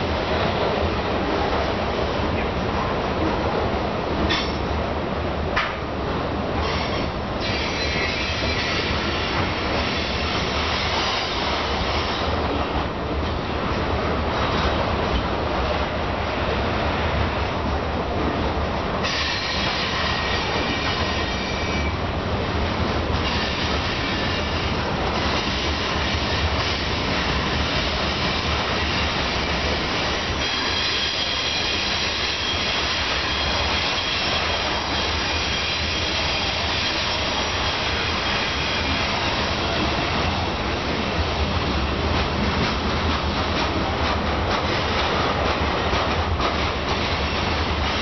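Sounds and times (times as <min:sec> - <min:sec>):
train wheels rolling on rails: 0:00.0 - 0:48.0
high-pitched wheel squeal: 0:06.6 - 0:09.2.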